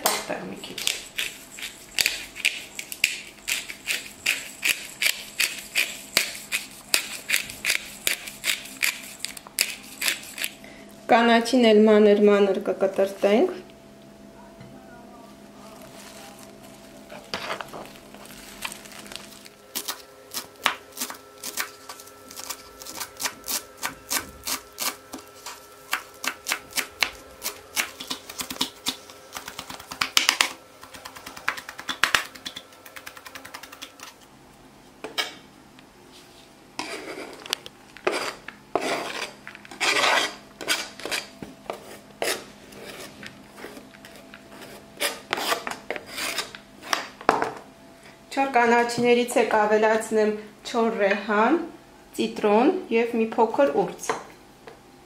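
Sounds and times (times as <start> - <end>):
knife chopping herbs on wooden board: 19.8 - 34.1.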